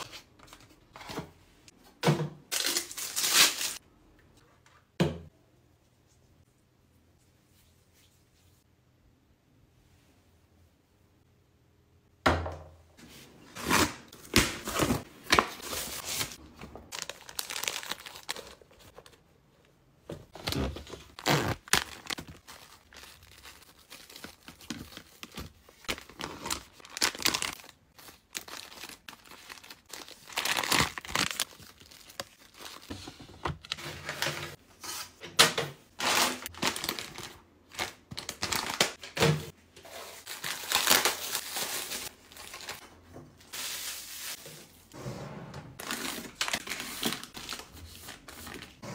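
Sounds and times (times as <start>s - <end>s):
plastic packaging crinkling and tearing: 2.5s - 3.8s, 13.6s - 19.2s, 20.3s - 33.0s, 36.0s - 39.0s, 40.0s - 42.8s, 45.8s - 48.8s.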